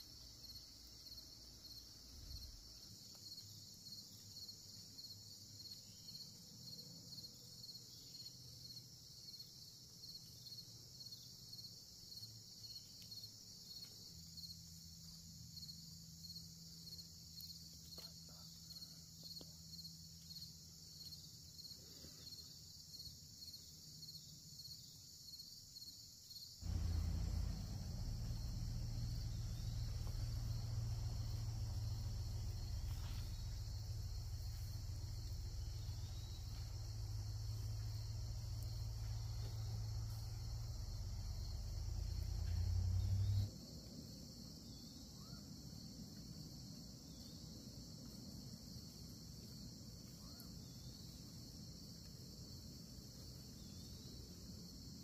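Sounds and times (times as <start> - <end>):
insects chirping: 0.0 - 55.0
loud low rumble: 26.6 - 43.4.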